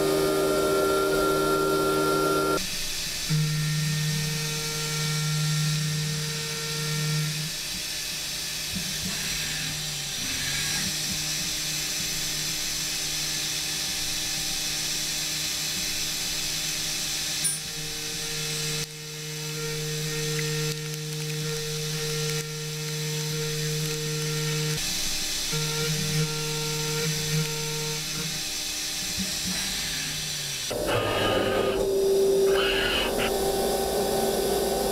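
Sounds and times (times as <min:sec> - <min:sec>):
end mill cutting metal whine: 0:00.0 - 0:02.6, 0:29.4 - 0:34.9.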